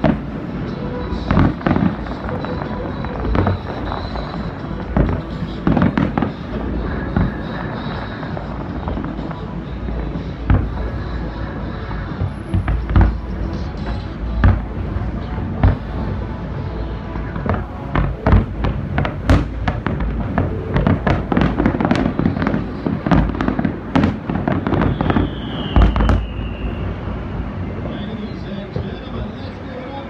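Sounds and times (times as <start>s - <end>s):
fireworks bursting with bangs: 0.0s - 30.0s
high falling whistle: 24.8s - 27.3s.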